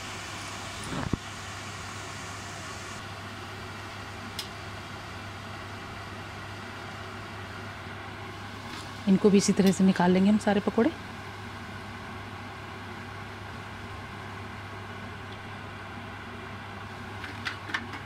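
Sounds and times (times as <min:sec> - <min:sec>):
food sizzling in hot oil: 0:00.0 - 0:03.0.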